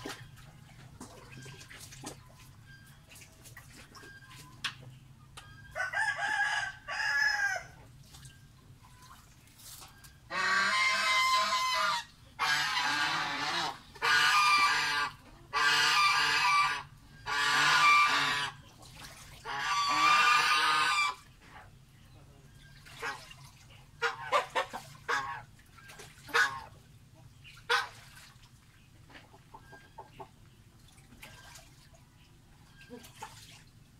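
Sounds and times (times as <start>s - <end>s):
poultry calling loudly: 10.3s - 18.6s, 19.4s - 21.3s.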